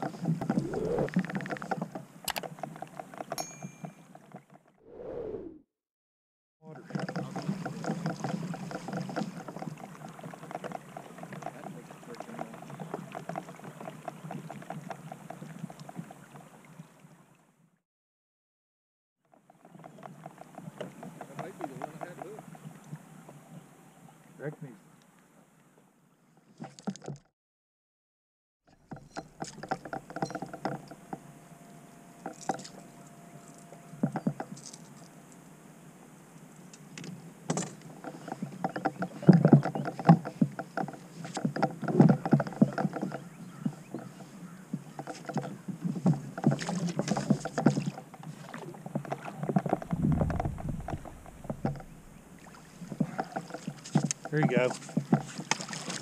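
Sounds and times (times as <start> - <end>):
fishing gear knocking on plastic kayak: 48.9 - 52.2, 52.8 - 56.0.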